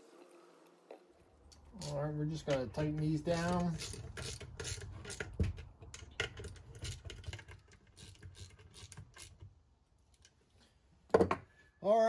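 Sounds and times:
hand tool clicking on bolts: 1.5 - 9.4.

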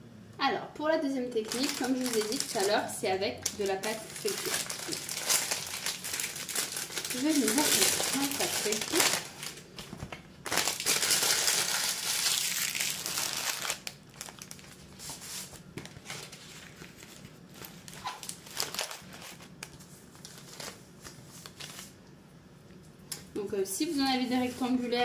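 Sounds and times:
plastic wrapper crinkling: 1.3 - 22.0
baking paper rustling and tapping: 3.5 - 11.7.

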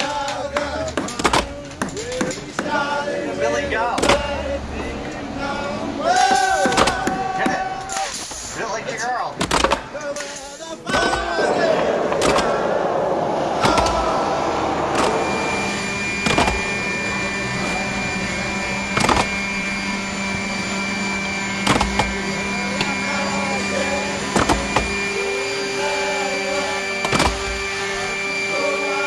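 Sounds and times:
power tool motor whining: 10.9 - 29.0
sharp knocks: 13.6 - 14.1.

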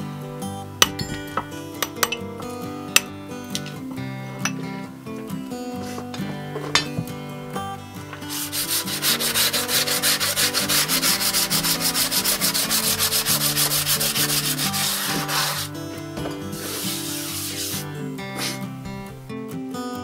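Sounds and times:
abrasive block scraping stone: 8.2 - 18.7.

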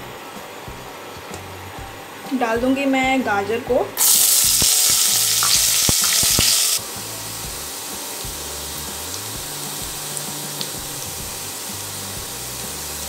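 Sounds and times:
carrots sizzling in hot oil: 4.0 - 13.0.

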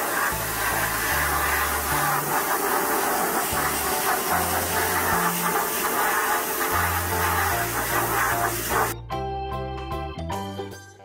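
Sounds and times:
pressure washer jet hissing: 0.0 - 9.0
background music with bass line: 6.9 - 11.0.

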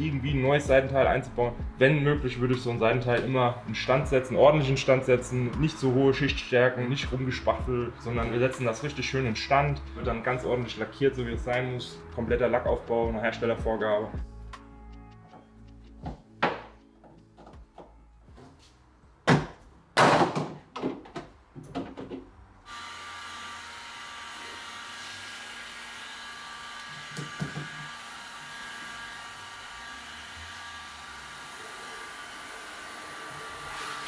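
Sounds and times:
knocks and thuds: 19.3 - 22.3.

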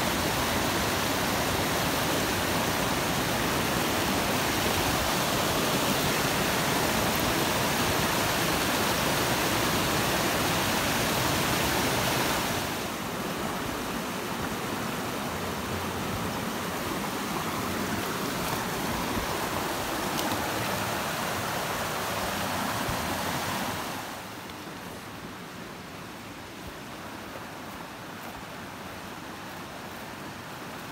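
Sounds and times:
stream rushing over rocks: 0.0 - 30.9.

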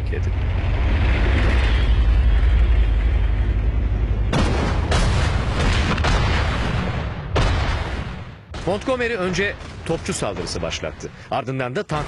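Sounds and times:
deep steady rumble: 0.0 - 8.6
artillery guns firing: 4.3 - 10.8.

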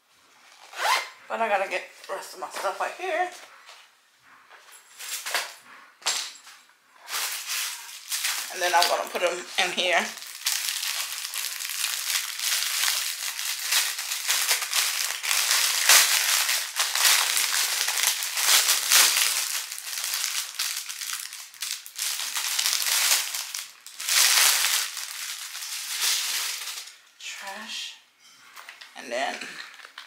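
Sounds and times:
packaging rustling and crinkling: 7.0 - 27.0.

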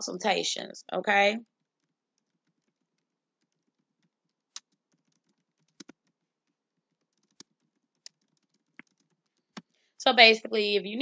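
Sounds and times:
typing on a keyboard: 1.5 - 9.7.

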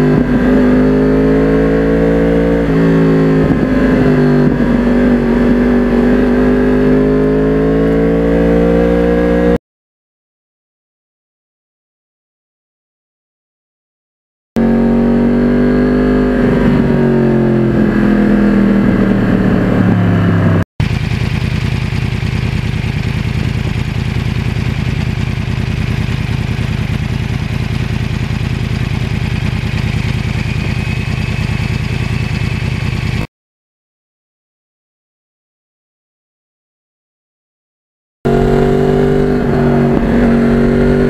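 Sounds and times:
motorcycle engine revving down: 0.0 - 9.6, 14.6 - 33.3, 38.3 - 41.0
motorcycle engine idling: 20.8 - 33.3.

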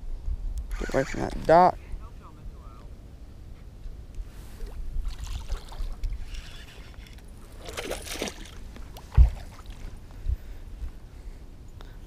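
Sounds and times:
fish splashing at water surface: 7.6 - 9.8.

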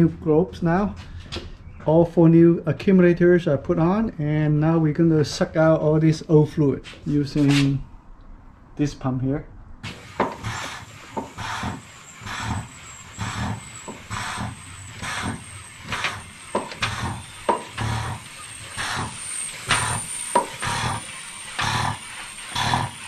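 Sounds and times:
hand pump rhythmic whoosh: 9.8 - 23.0.

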